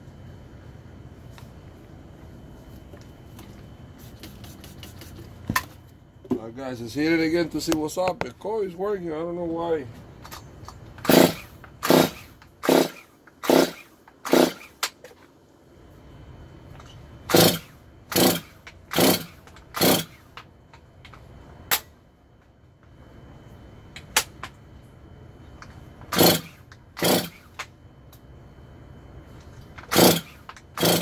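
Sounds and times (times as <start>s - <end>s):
chainsaw starter cord pulls: 11.0s - 14.7s, 17.3s - 20.2s, 26.1s - 27.5s, 29.8s - 31.0s.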